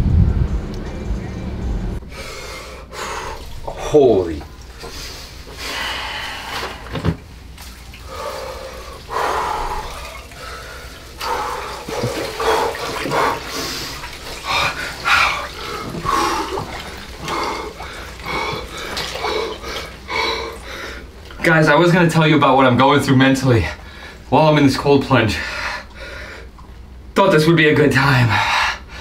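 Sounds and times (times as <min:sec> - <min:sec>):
water sloshing and splashing: 0:03.2 - 0:21.7.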